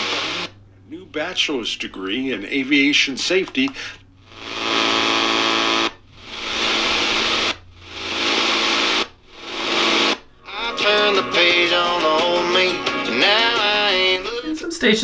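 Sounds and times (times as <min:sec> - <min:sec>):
radio static hiss and buzz: 0:00.0 - 0:00.6, 0:03.3 - 0:11.1.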